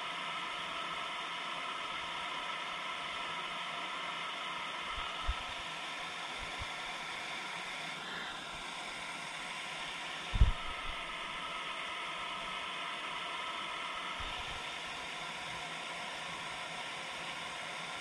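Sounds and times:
dull low thump: 0:10.4 - 0:11.0.

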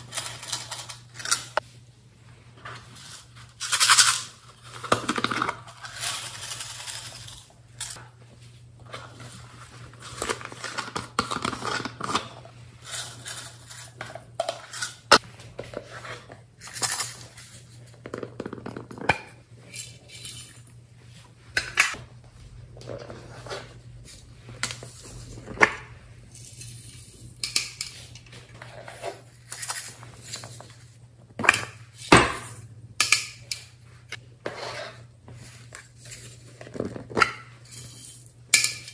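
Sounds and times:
rustling and scraping: 0:00.0 - 0:31.4, 0:33.9 - 0:38.6.

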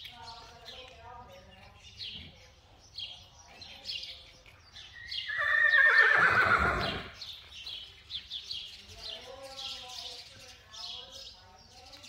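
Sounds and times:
birds chirping: 0:00.0 - 0:12.0
horse whinnying: 0:05.2 - 0:07.2.

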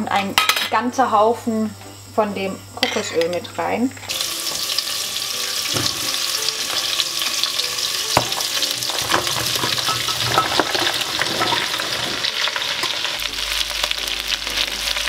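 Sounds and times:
vegetables sizzling in hot oil: 0:02.7 - 0:15.0
pumpkin cubes knocking into pot: 0:08.2 - 0:12.1.

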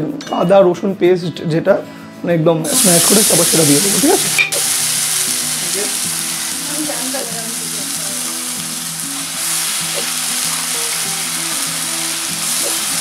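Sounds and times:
background music with melody: 0:00.0 - 0:13.0
oil sizzling in a pan: 0:02.6 - 0:13.0.

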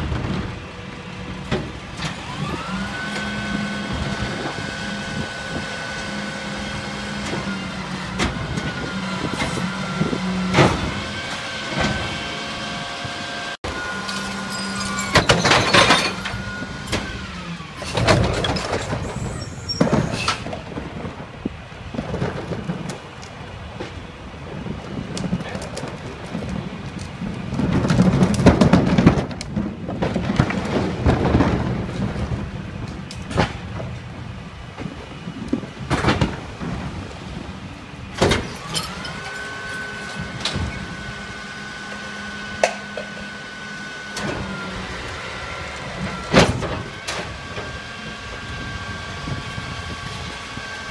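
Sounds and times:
wheeled carts rattling on pavement: 0:13.6 - 0:43.6
metal clanks of hopper: 0:13.9 - 0:17.2.

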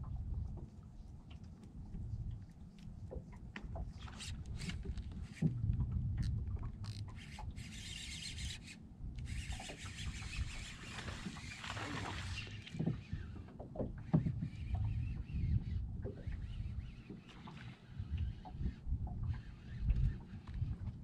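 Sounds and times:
water against hull: 0:00.0 - 0:21.0
wind on microphone: 0:00.0 - 0:21.0
fish splashing at water surface: 0:09.6 - 0:13.1.

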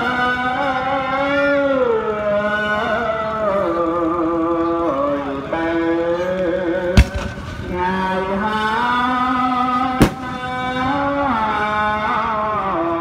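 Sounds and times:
firework bangs: 0:07.0 - 0:08.6, 0:10.0 - 0:11.1.

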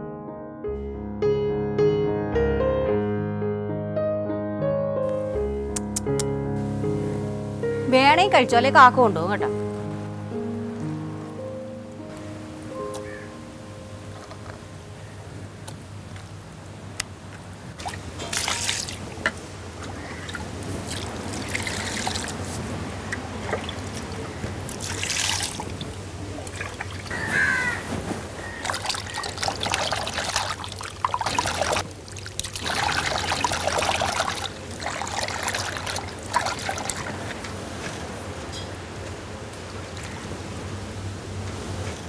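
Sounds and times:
crow cawing: 0:13.0 - 0:13.4, 0:20.0 - 0:20.4, 0:27.1 - 0:29.3
water sloshing in steel bowl: 0:17.8 - 0:22.6, 0:23.4 - 0:27.1, 0:28.5 - 0:37.6.

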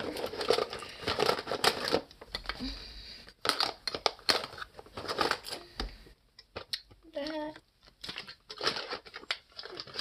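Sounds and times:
makeup items clicking and rustling: 0:00.0 - 0:10.0.

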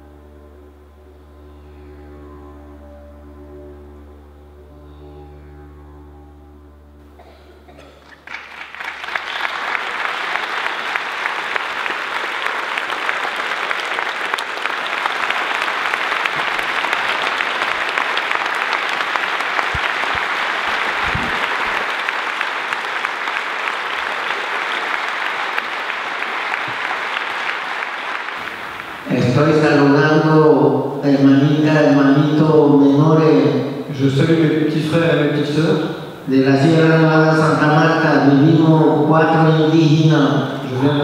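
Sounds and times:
didgeridoo drone: 0:00.0 - 0:08.2
audience applause: 0:07.9 - 0:30.2.

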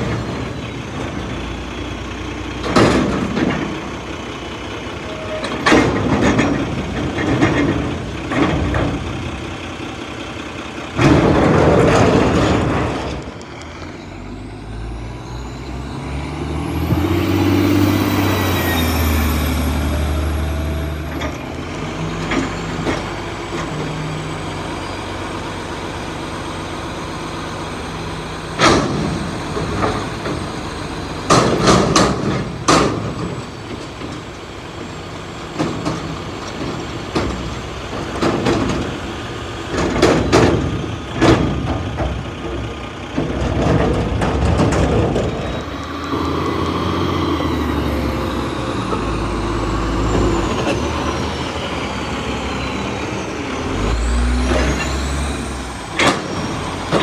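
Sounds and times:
diesel truck engine running: 0:00.0 - 0:57.0
metal bangs of dumpster: 0:02.6 - 0:03.9, 0:05.3 - 0:09.2, 0:11.0 - 0:13.2, 0:28.6 - 0:34.2, 0:39.7 - 0:45.7.

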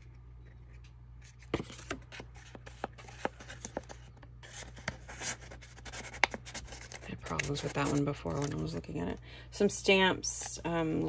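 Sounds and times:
low steady hum: 0:00.0 - 0:11.0
paper pages rustling: 0:00.4 - 0:08.8.

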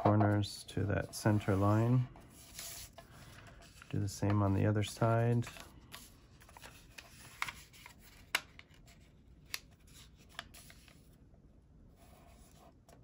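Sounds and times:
paper rustling: 0:01.0 - 0:11.1
paper fold clicks: 0:05.4 - 0:11.0.

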